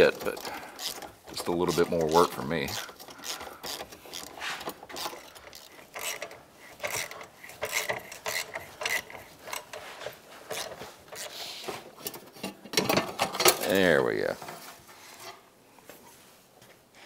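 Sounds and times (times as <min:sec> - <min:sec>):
ratchet wrench clicking: 0:00.0 - 0:09.8.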